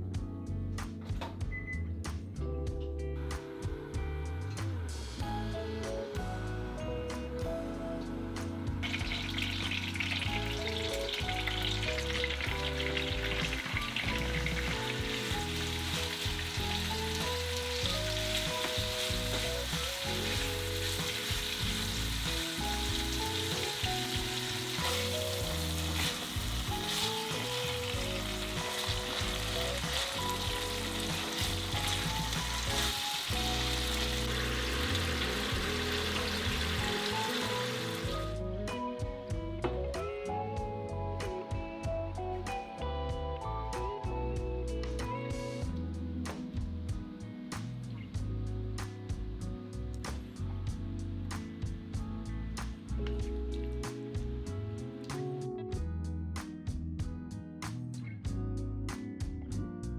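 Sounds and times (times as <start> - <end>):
soft background music: 0.0 - 59.9
meat sizzling in a frying pan: 8.8 - 38.3.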